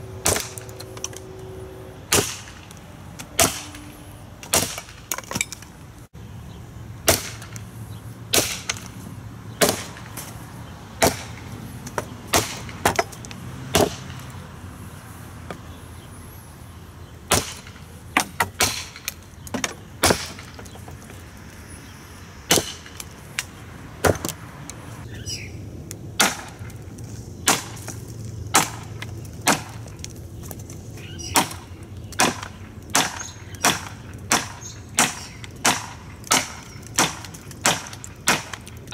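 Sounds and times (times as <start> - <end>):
hatchet chopping wood: 0.2 - 1.2, 2.1 - 2.6, 3.2 - 3.8, 4.4 - 5.7, 7.0 - 7.6, 8.3 - 8.9, 9.6 - 10.4, 11.0 - 14.3, 17.3 - 20.8, 22.5 - 24.4, 26.2 - 26.7, 27.4 - 29.9, 31.3 - 38.9.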